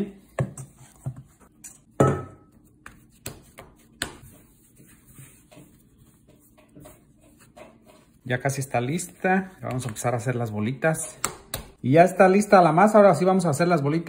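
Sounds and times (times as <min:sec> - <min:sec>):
dough kneaded on wooden table: 0:00.0 - 0:11.8
dough thump and knocks: 0:11.2 - 0:11.8.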